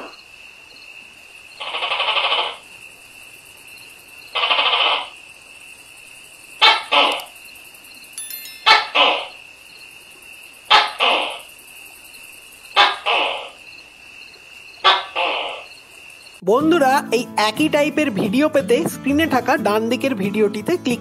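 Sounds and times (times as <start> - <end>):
gecko calling: 14.8 - 15.8.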